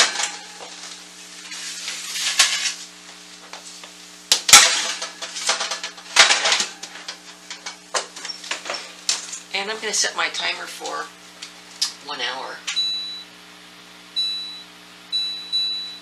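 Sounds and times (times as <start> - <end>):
metal oven racks clanking: 0.0 - 2.8, 4.5 - 9.4.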